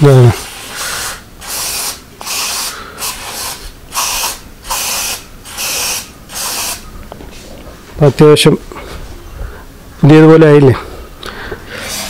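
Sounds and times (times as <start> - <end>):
aerosol can spraying: 0.3 - 6.8, 11.8 - 12.0.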